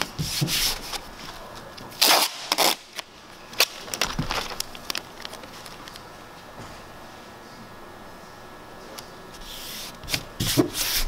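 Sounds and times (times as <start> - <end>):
tape rustling and ticking: 0.9 - 6.1
tape ripping off roll: 2.0 - 3.0.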